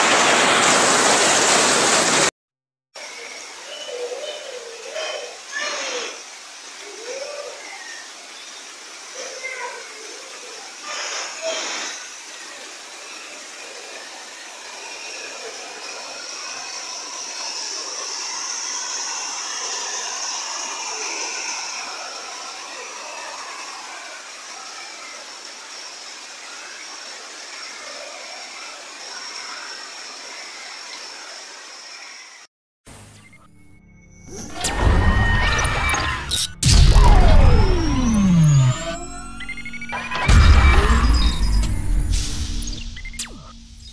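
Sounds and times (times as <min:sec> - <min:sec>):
floodwater running: 0:00.0 - 0:02.3
heavy rain pouring: 0:00.0 - 0:02.3.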